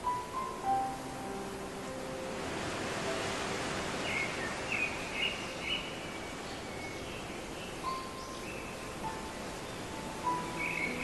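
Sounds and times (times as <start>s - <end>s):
steady outdoor hiss: 0.0s - 11.0s
birds chirping: 3.9s - 11.0s.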